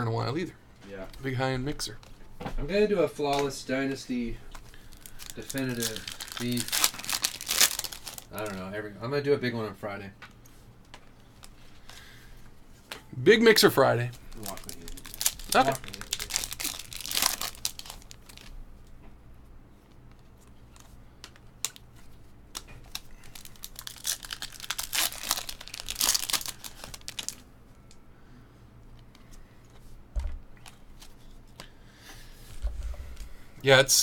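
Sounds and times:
cards clicking and rustling: 0:04.5 - 0:08.6, 0:14.1 - 0:18.5
foil wrapper crinkling and tearing: 0:04.6 - 0:08.7, 0:14.2 - 0:18.6, 0:20.7 - 0:27.5.

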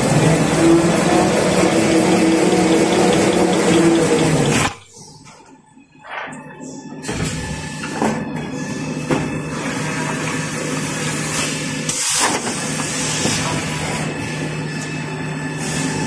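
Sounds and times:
sharp machine clicks: 0:00.0 - 0:04.8
machine hum with hiss and rattle: 0:00.0 - 0:16.0.

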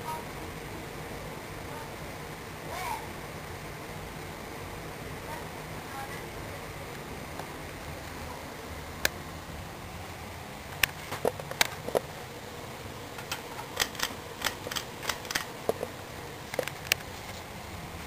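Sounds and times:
ceiling fan humming: 0:00.0 - 0:18.0
sharp clicks and ticks: 0:13.2 - 0:15.9.

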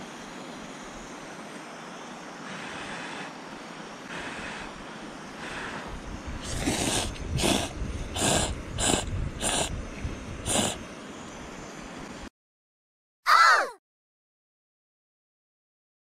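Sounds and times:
person slurping noodles: 0:06.4 - 0:09.7, 0:10.5 - 0:10.8.

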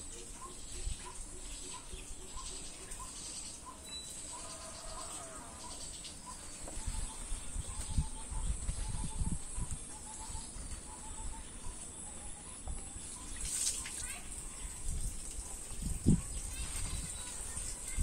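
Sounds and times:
high insect-like hiss: 0:00.0 - 0:08.0, 0:12.6 - 0:18.0.

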